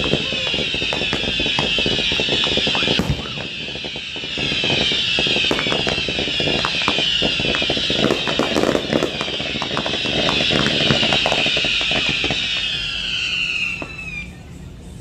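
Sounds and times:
crowd voices: 0.0s - 8.0s
fireworks crackling and popping: 0.0s - 14.5s.

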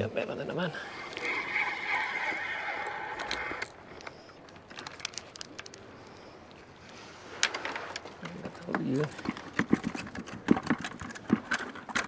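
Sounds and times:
fishing reel whirring: 0.7s - 4.4s.

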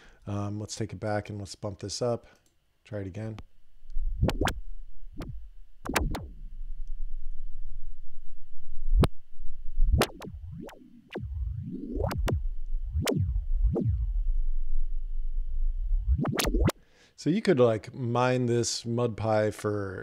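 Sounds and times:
sharp hits sweeping down in pitch: 5.2s - 6.5s, 9.8s - 16.7s.

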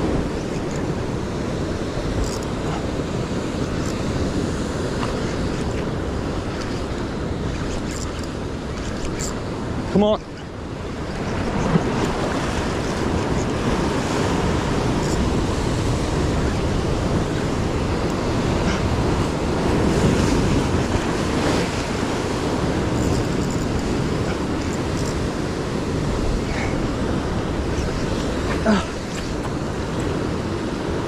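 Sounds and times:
waves breaking against rocks: 0.0s - 31.0s
wind buffeting microphone: 0.0s - 31.0s.

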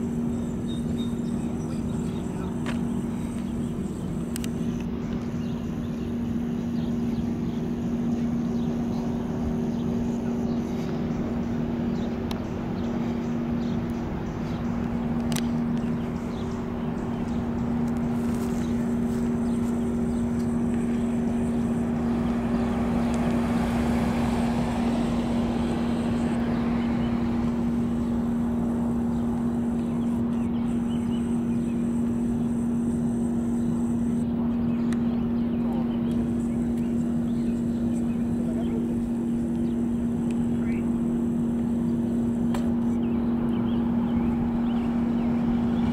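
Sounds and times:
steady low hum: 0.0s - 45.9s
vehicle passing: 10.0s - 33.8s.

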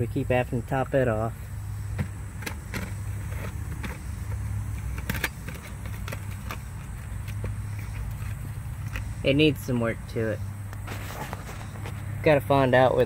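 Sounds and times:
steady low hum: 0.0s - 13.0s
phone handling clicks and rustles: 1.9s - 9.9s.

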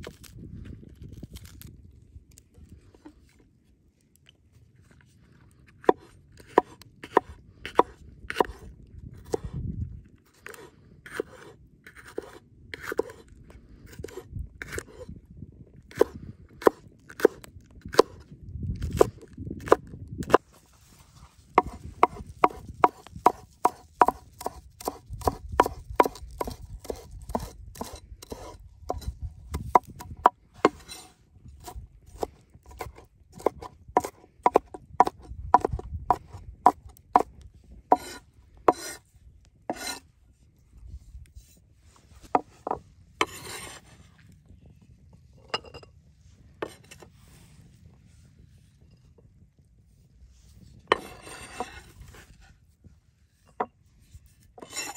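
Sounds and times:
knife chopping on wooden board: 5.8s - 8.6s, 9.2s - 9.5s, 10.4s - 13.2s, 21.6s - 37.3s, 37.9s - 39.0s, 39.7s - 40.0s, 50.9s - 52.5s
knife scraping across board: 5.8s - 9.6s, 10.4s - 13.3s, 13.9s - 15.1s, 18.9s - 37.3s, 37.9s - 39.0s, 39.7s - 40.1s, 42.2s - 44.0s, 46.6s - 47.4s, 50.6s - 52.6s, 53.4s - 54.9s.

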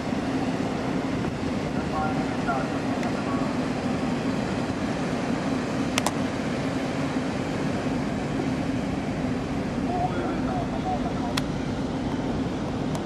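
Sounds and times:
ship machinery humming: 0.0s - 13.0s.

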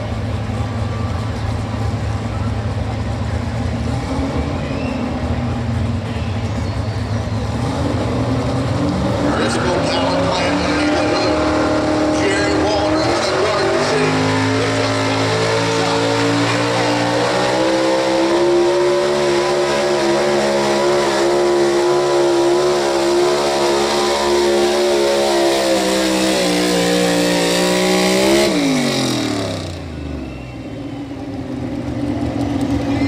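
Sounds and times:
engine idling low: 0.0s - 8.8s
truck engine revving high: 0.0s - 30.5s.

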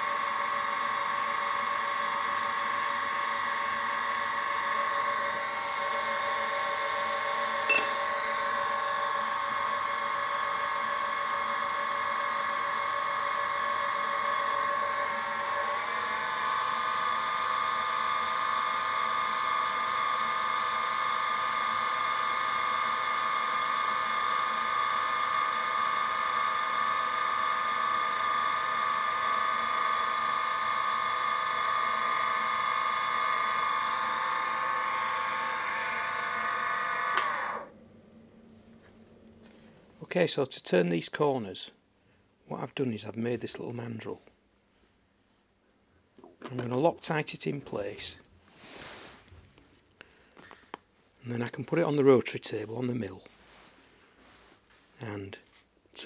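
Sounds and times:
mill spindle whine: 0.0s - 37.8s.

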